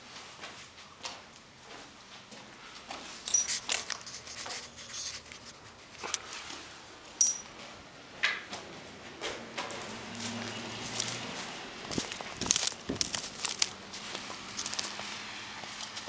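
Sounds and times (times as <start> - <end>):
footsteps on gritty concrete: 10.2 - 16.0.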